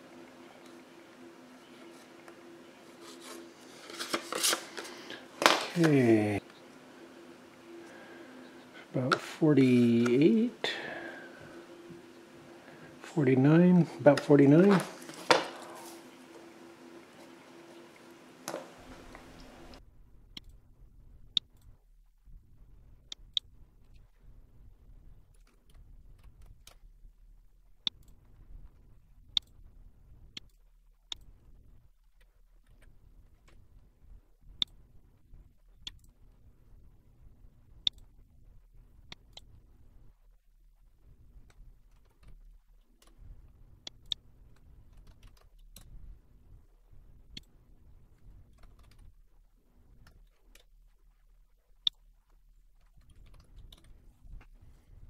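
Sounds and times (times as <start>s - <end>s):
low hum: 0.0s - 55.0s
faint low rumble: 18.8s - 55.0s
computer mouse clicks: 20.3s - 20.6s, 27.8s - 28.3s, 35.8s - 36.2s, 37.8s - 38.1s, 43.8s - 46.0s, 48.4s - 49.1s.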